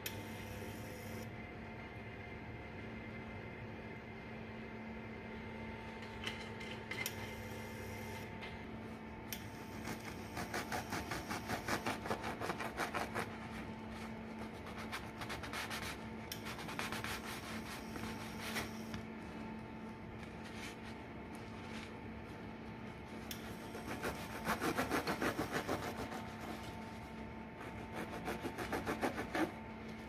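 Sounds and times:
knife sawing through bread: 0:09.7 - 0:18.8, 0:23.5 - 0:26.8, 0:27.6 - 0:29.6.

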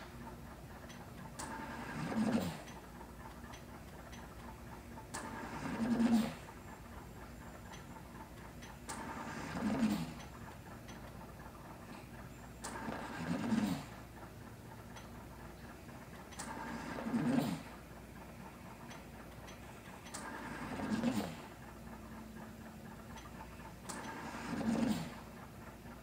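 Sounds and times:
ventilator-assisted breathing: 0:01.4 - 0:02.8, 0:05.1 - 0:06.8, 0:08.8 - 0:10.6, 0:11.7 - 0:14.4, 0:15.8 - 0:25.5.

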